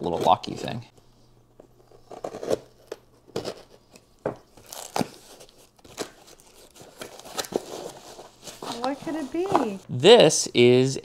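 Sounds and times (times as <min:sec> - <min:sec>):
cardboard box tearing and crinkling: 0:02.1 - 0:03.8, 0:04.6 - 0:09.2.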